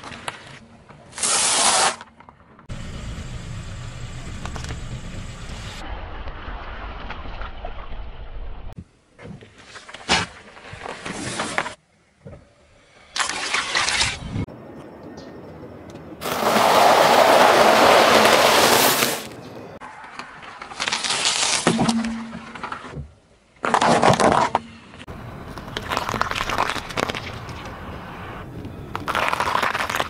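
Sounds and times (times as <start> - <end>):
car tyre crushing things: 16.2 - 30.0.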